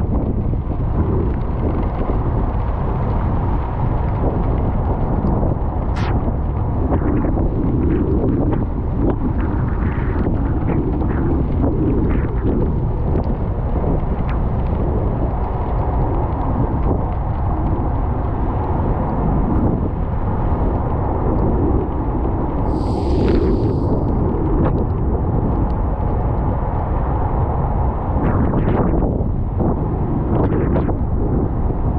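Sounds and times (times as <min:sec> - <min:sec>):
brief hiss: 0:22.7 - 0:24.2.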